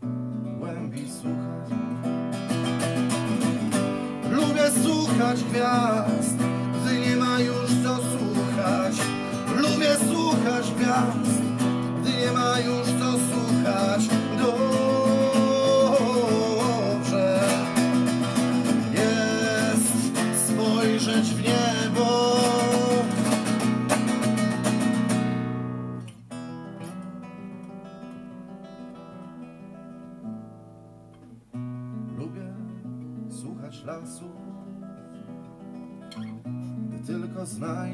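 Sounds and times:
acoustic guitar strumming: 0.0 - 37.9
softly picked guitar notes: 0.0 - 37.9
man singing: 0.4 - 2.0, 3.0 - 24.5, 32.0 - 34.8, 36.8 - 37.9.

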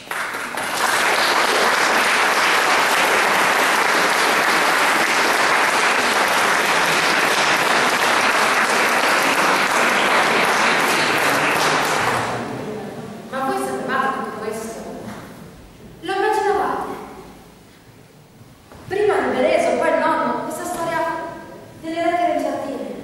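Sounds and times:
audience applauding: 0.0 - 12.6.

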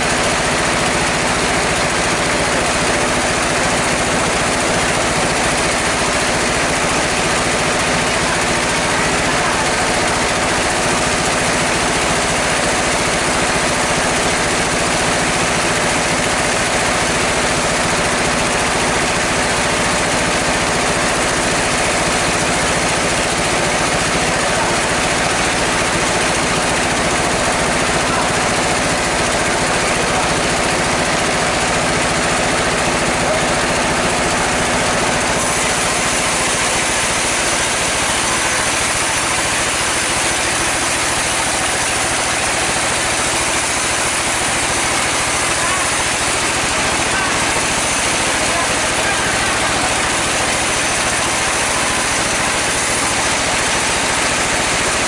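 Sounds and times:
log saw cutting wood: 35.3 - 54.4.

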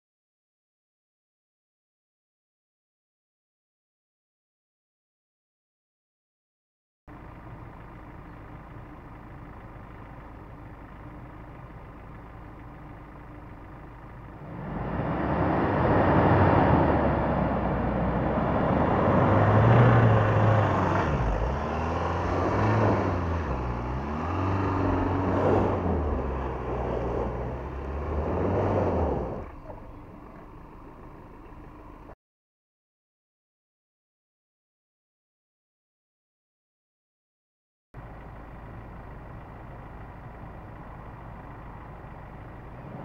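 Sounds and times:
pickup truck idling: 7.1 - 14.8, 38.0 - 43.0
engine revving as truck drives past: 14.4 - 29.7.

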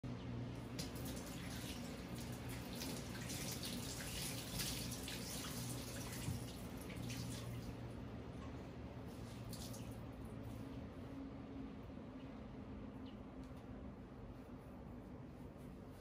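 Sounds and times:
water splashing and dripping: 0.7 - 7.8, 9.3 - 10.0.

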